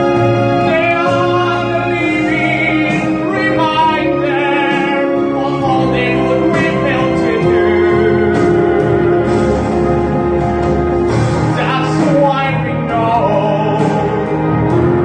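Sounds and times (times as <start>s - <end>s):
person singing ballad: 0.0s - 15.0s
sustained accompaniment chords: 0.0s - 15.0s.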